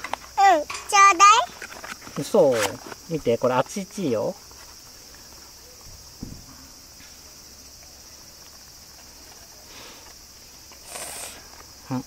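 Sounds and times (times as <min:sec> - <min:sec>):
insects trilling: 0:00.0 - 0:12.0
soft thump: 0:05.8 - 0:06.6.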